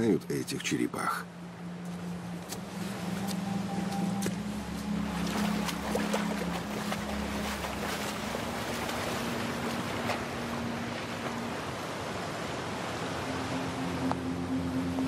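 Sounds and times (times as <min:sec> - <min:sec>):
low held musical drone: 0:01.0 - 0:15.0
ocean surf washing on beach: 0:04.6 - 0:15.0.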